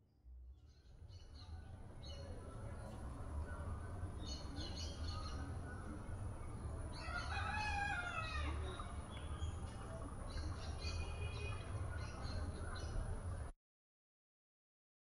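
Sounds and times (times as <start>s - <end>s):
rooster crowing: 7.0s - 8.6s.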